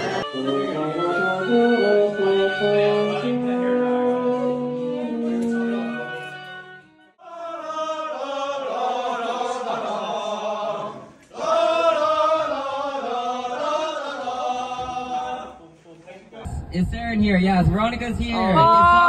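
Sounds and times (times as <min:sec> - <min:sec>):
voices singing together: 0:07.2 - 0:15.8.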